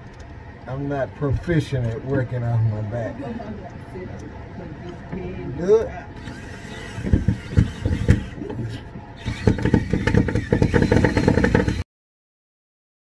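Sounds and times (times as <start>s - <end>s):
cordless drill driving screws: 6.2s - 11.8s.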